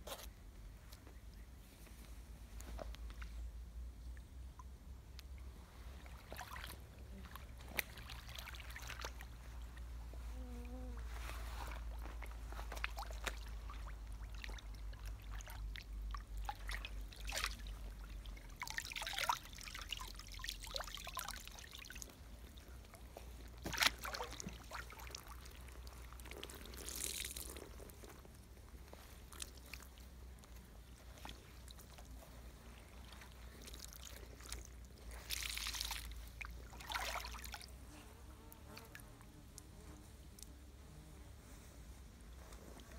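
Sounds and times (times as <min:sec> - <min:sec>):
water trickling in a creek: 0:02.7 - 0:37.9, 0:38.5 - 0:40.8
short splashes: 0:05.8 - 0:09.9, 0:11.0 - 0:27.7, 0:30.8 - 0:37.8.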